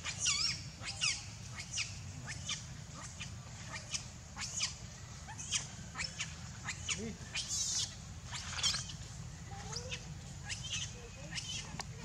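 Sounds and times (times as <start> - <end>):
monkeys squealing: 0.0 - 9.0, 9.6 - 11.8.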